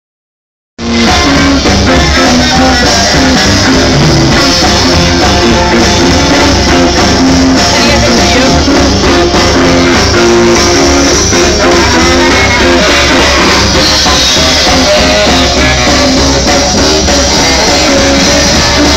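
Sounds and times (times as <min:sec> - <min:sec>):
swing music through speaker: 0:00.8 - 0:18.9.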